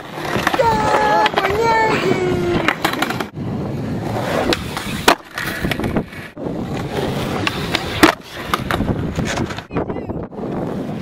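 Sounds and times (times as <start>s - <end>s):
skateboard clack: 0.0s - 3.4s, 4.2s - 11.0s
skateboard wheels on concrete: 0.0s - 11.0s.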